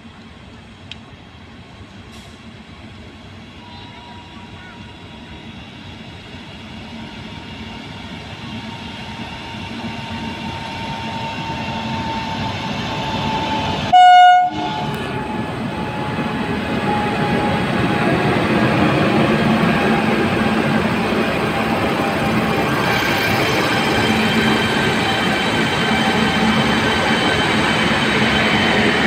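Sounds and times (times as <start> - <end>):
electric locomotive passing: 0.0 - 29.0
locomotive horn blast: 13.9 - 15.4.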